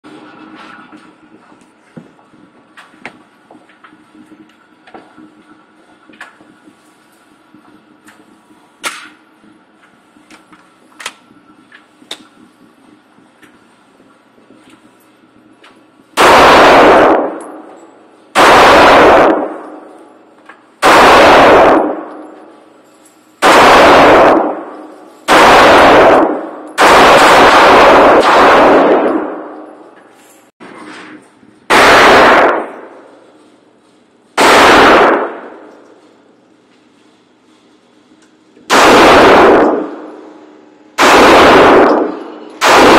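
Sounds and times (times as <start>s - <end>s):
pistol shots echoing indoors: 16.1s - 20.2s, 20.8s - 22.6s, 23.4s - 29.9s, 31.7s - 33.3s, 34.3s - 36.0s, 38.6s - 42.9s.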